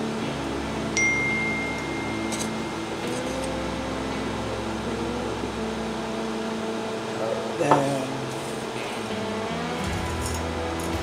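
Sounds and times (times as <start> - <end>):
steady background hum: 0.0 - 11.0
metallic ping ringing: 1.0 - 3.3.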